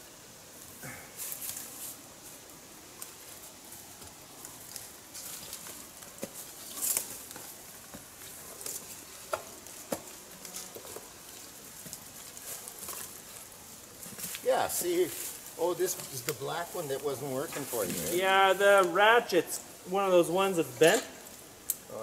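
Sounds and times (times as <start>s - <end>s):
brushing through branches: 1.2s - 2.4s, 3.0s - 19.1s
rustling and scraping on ladder: 3.0s - 18.2s.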